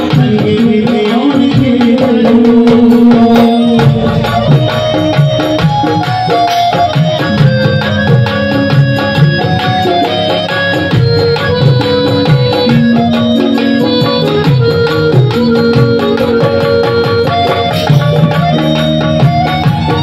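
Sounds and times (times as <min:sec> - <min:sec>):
man singing devotional song: 0:00.0 - 0:05.6
steady drum rhythm: 0:00.0 - 0:20.0.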